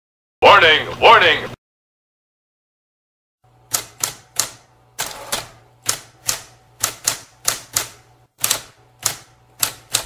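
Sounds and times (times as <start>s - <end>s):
typewriter keys clacking: 3.7s - 10.0s.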